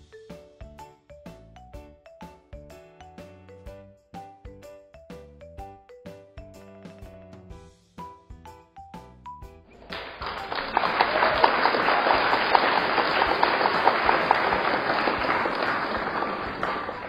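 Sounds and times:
crowd applauding: 9.8s - 17.0s.

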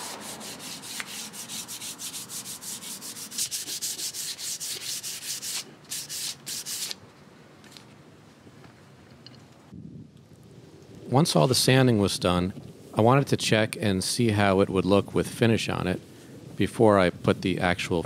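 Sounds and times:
sandpaper rubbing on wood: 0.0s - 7.0s.

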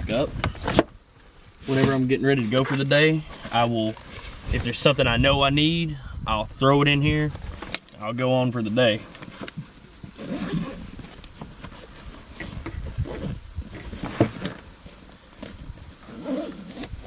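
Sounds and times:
insects chirring: 0.0s - 17.0s
backpack rustling and knocks: 9.2s - 14.7s.

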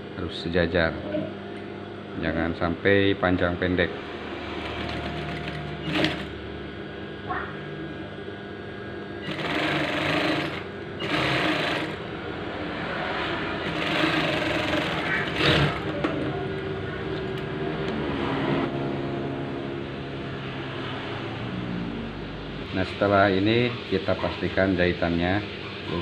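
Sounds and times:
sewing machine stitching: 4.6s - 6.3s, 9.2s - 12.0s, 13.6s - 16.0s.

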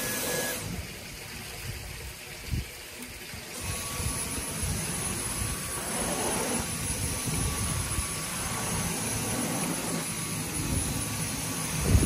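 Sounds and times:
vacuum cleaner motor whine: 0.0s - 0.9s, 3.4s - 12.0s
vacuum head brushing over doormat: 3.6s - 12.0s.

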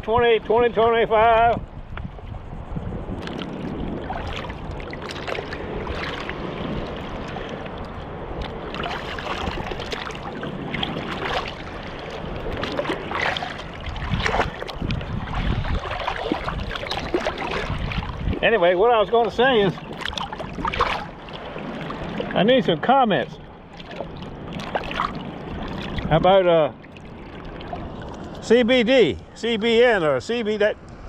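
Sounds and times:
waves washing: 0.0s - 31.0s
wind rumbling on microphone: 0.0s - 31.0s
water sloshing around legs: 3.1s - 28.5s
sharp splashes: 3.2s - 18.6s, 19.5s - 22.5s, 23.4s - 26.2s.

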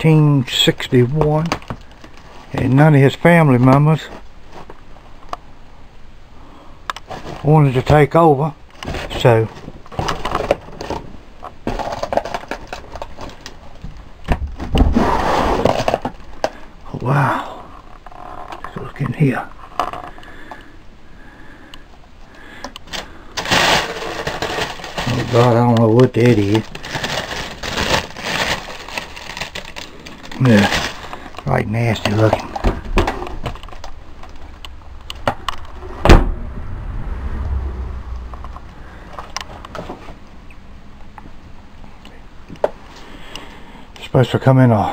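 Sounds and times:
wood and debris scraping: 22.9s - 34.5s
low rumble: 34.6s - 41.4s
heavy thumps: 35.2s - 40.2s.

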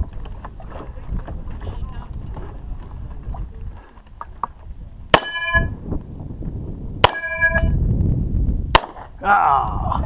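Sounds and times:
metallic ring of steel target: 5.1s - 5.8s, 7.0s - 7.8s
pistol shot: 8.8s - 9.1s.

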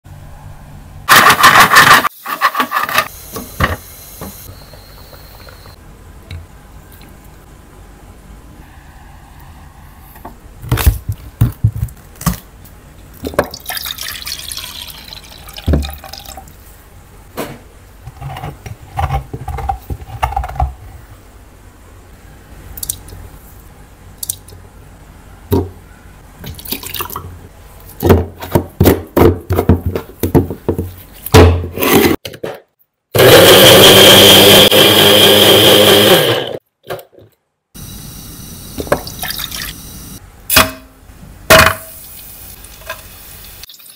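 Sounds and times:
electric blender grinding: 33.2s - 36.6s.

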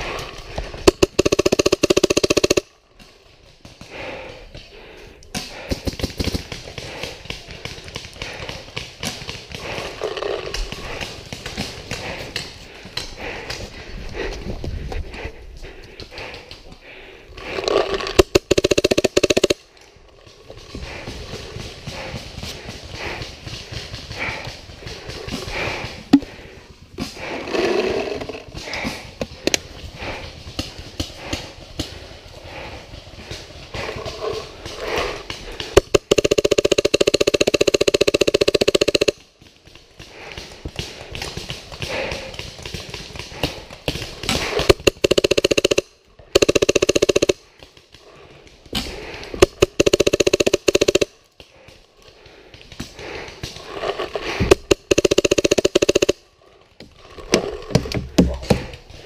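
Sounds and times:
paintball marker firing: 0.1s - 2.7s, 5.4s - 9.8s, 17.6s - 19.6s, 34.7s - 39.3s, 40.0s - 47.9s, 48.7s - 51.7s, 54.2s - 56.2s.

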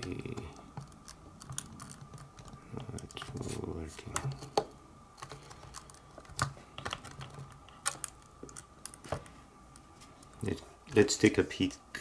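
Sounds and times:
fingers clicking on plastic housing: 0.0s - 3.3s.

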